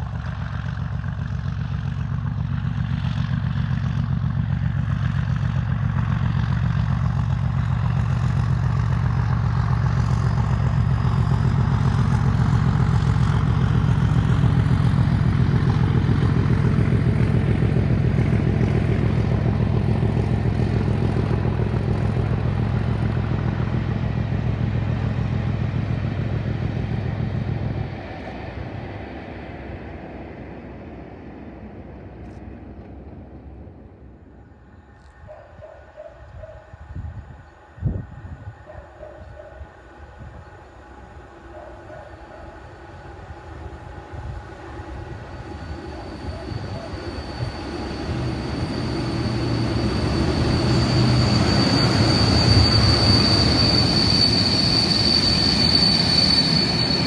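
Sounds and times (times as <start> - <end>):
diesel locomotive engine drone: 0.0 - 57.0
train wheels and coaches rattling: 4.0 - 28.5, 38.4 - 57.0.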